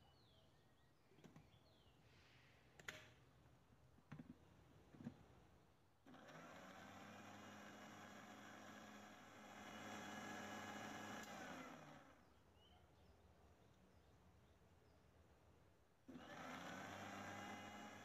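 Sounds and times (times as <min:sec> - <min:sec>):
blender motor running: 0:06.1 - 0:12.2, 0:16.1 - 0:18.0.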